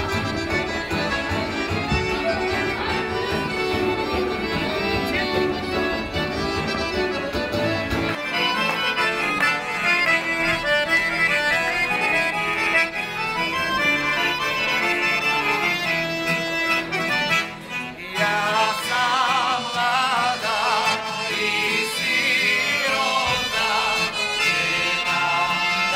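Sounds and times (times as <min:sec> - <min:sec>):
accordion playing folk dance tune: 0:00.0 - 0:25.9.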